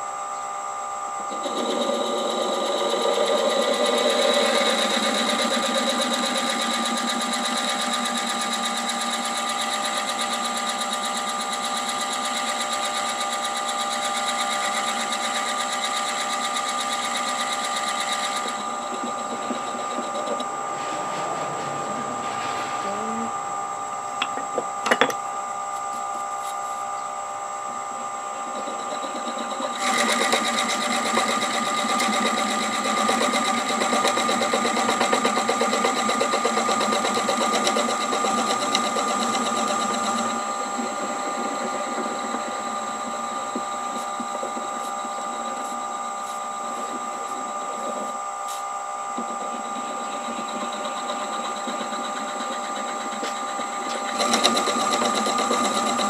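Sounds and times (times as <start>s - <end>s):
wood lathe motor whine: 0.0s - 56.0s
drill bit boring into wood: 1.1s - 22.0s, 22.6s - 56.0s.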